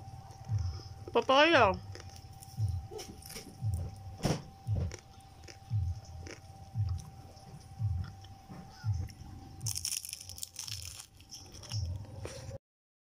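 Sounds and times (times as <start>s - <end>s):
chewing: 1.8s - 4.0s, 4.8s - 12.6s
crispy crunch from a bite: 4.9s - 7.1s, 9.6s - 12.5s.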